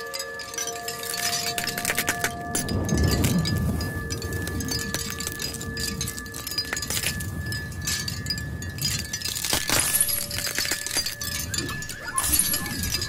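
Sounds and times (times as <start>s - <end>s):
glassy chime-like tinkling: 0.0s - 13.0s
long steady ringing tones: 0.0s - 13.0s.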